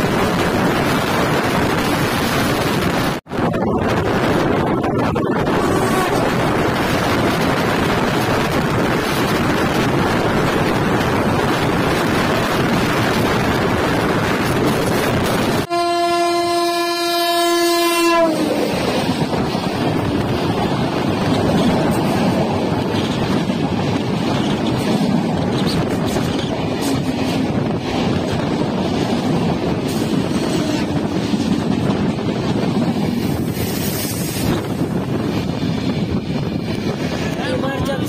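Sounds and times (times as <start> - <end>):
locomotive horn blast: 5.5 - 6.4, 15.7 - 18.8
trains rushing past: 18.0 - 38.0.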